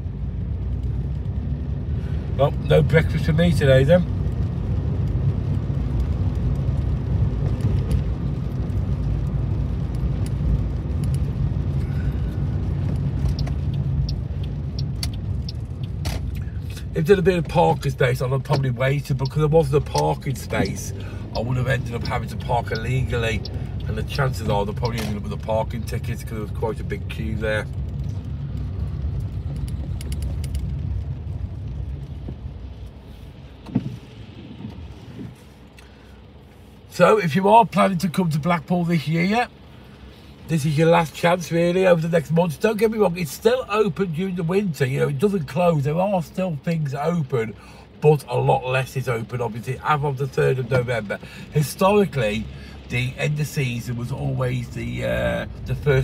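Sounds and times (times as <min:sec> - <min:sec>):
car driving on wet road: 0:00.0 - 0:56.0
faint ticks: 0:12.8 - 0:16.9.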